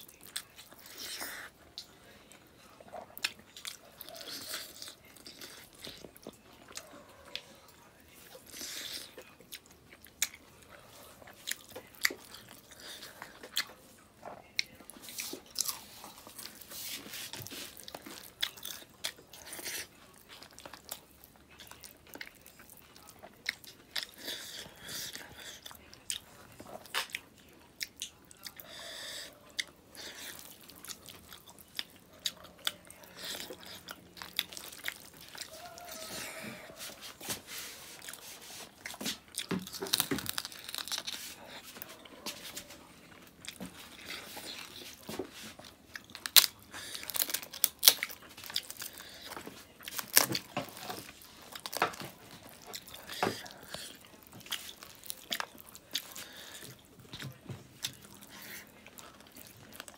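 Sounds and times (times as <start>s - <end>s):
person chewing and crunching: 0.0s - 59.9s.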